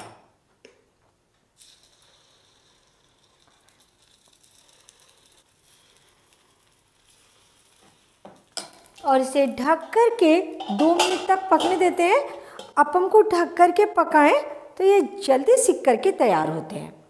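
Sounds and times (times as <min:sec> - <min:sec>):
faint batter sizzling: 0:01.5 - 0:13.1.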